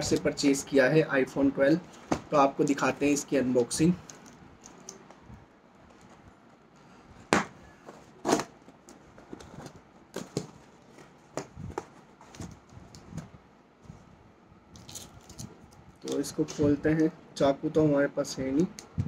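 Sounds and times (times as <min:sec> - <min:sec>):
cardboard flaps rustling: 0:07.3 - 0:13.3
packing tape ripping: 0:08.2 - 0:08.6.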